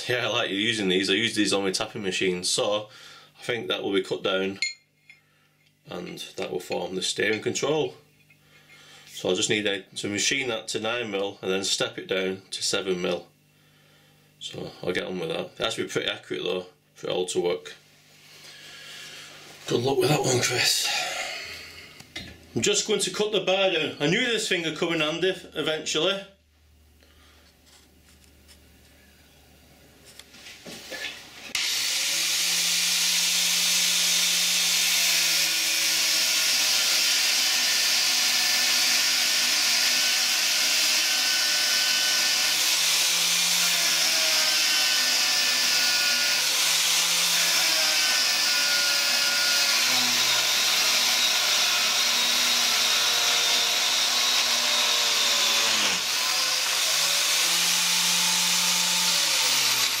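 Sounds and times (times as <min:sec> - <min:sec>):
angle grinder cutting steel: 0:31.5 - 1:00.0.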